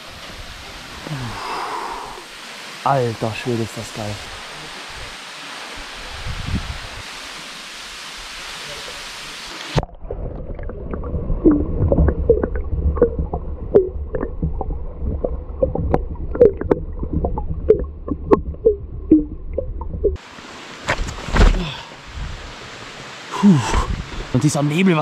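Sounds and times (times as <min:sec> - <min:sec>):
falling water hissing: 0:00.0 - 0:09.8, 0:20.2 - 0:25.0
bubbles popping underwater: 0:09.8 - 0:20.2
muffled underwater rumble: 0:09.8 - 0:20.2.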